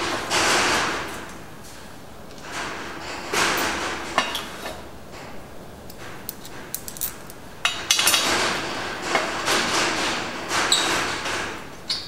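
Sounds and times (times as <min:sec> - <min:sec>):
metal parts clattering and rubbing: 0:05.9 - 0:07.4.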